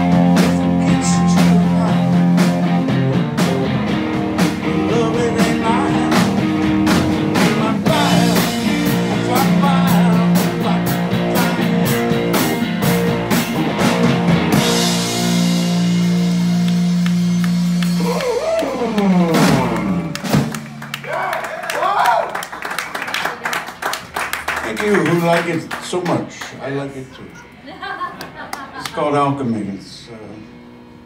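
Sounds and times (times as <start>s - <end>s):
live rock band playing: 0.0s - 21.2s.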